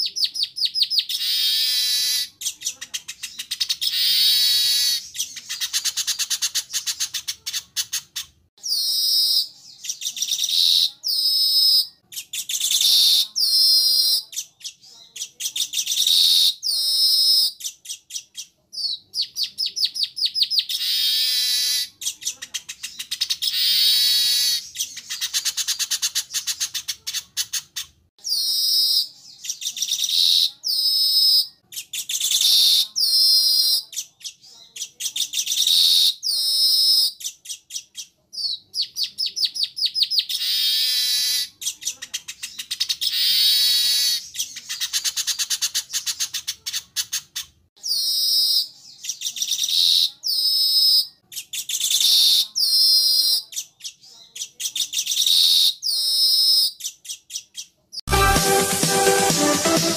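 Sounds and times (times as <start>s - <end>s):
bird chattering song with trills: 0.0s - 57.8s.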